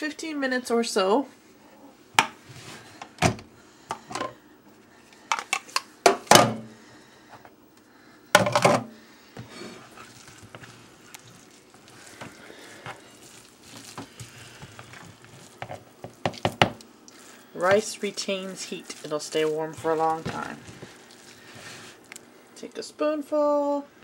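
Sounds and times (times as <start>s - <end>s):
plastic paddle stirring rice: 9.4s - 22.2s.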